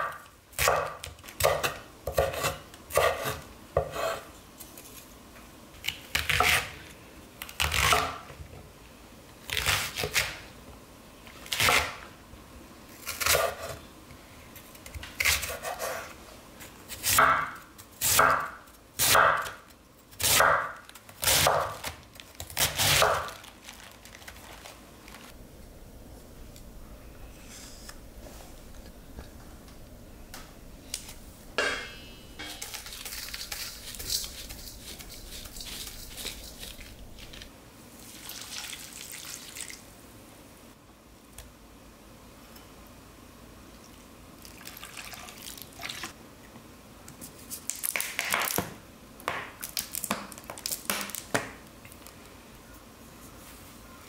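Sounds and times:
liquid pouring and dripping: 38.1s - 39.8s.

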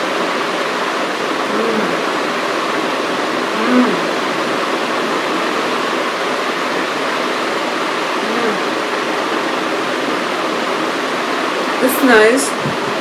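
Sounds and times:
air conditioner running: 0.0s - 13.0s
faint vocal sound: 1.5s - 2.2s, 3.5s - 4.2s, 8.2s - 8.8s.

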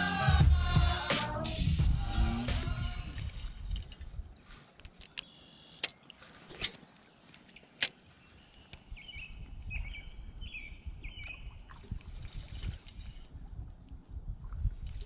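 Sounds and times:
low rumble: 0.3s - 4.3s.

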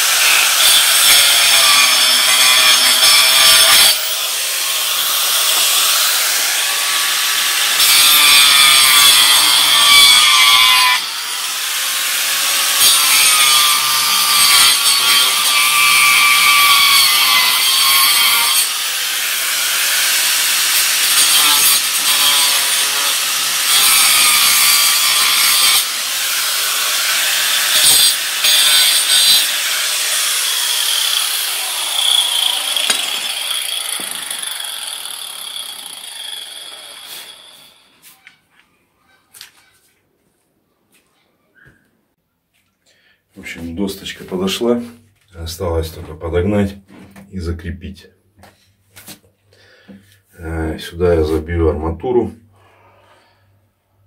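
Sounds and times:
angle grinder cutting wood: 0.0s - 38.4s.

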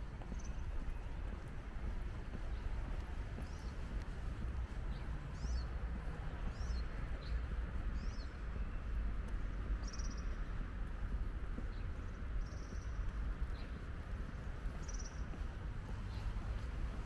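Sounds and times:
low city rumble: 0.0s - 17.0s
small birds chirping: 0.1s - 16.9s.

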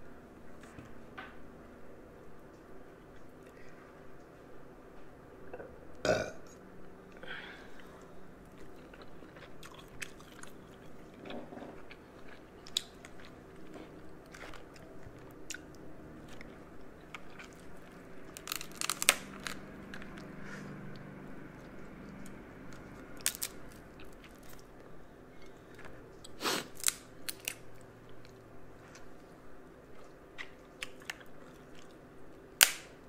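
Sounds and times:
person chewing: 7.1s - 32.1s
crab shell cracking: 17.2s - 20.2s, 23.1s - 24.6s, 26.6s - 27.8s
sharp snap: 32.6s - 33.0s.

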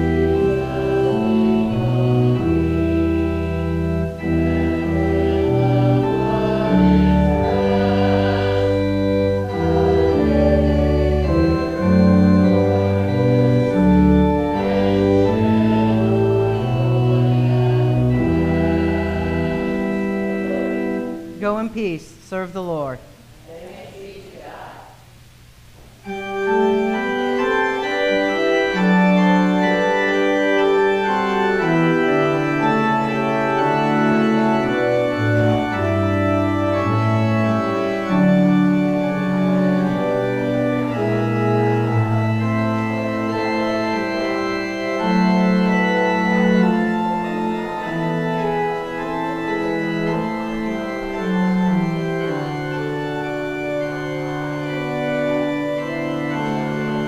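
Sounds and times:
organ playing slow chords: 0.0s - 23.4s, 25.0s - 57.0s.

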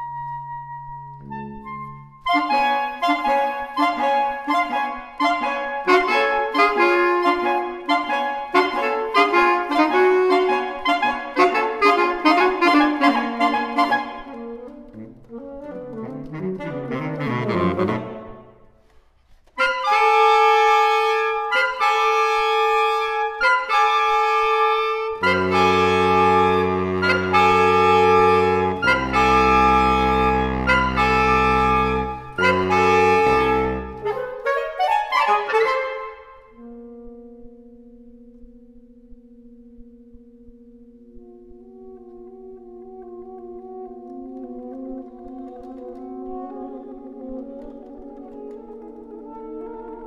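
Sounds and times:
saxophone quartet playing: 1.2s - 18.6s, 19.5s - 38.4s, 41.0s - 50.0s.

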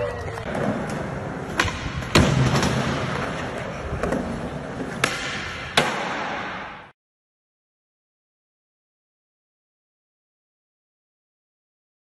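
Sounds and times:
skateboard wheels rolling on concrete: 0.0s - 6.9s.

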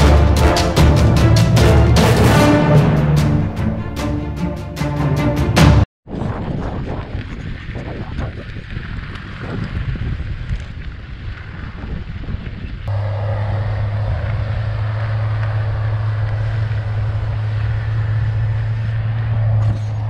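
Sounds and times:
wind rushing over microphone: 6.0s - 20.0s
heavy machine engine humming: 12.9s - 20.0s.

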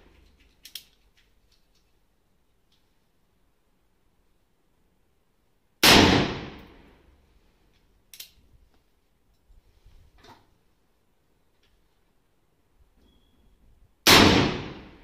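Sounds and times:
revolver gunshot: 5.8s - 6.8s, 14.1s - 15.0s.

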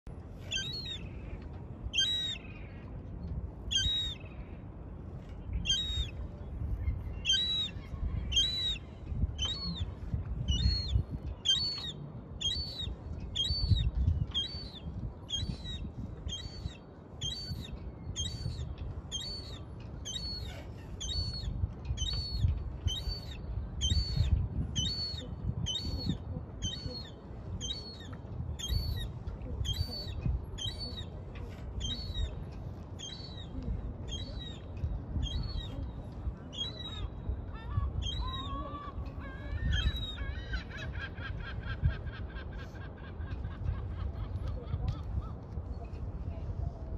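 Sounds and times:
young gull piping calls: 0.4s - 1.1s, 1.9s - 2.4s, 3.7s - 4.3s, 5.6s - 6.2s, 6.8s - 9.9s, 10.5s - 31.2s, 31.8s - 32.4s, 35.2s - 35.8s, 36.5s - 45.4s.

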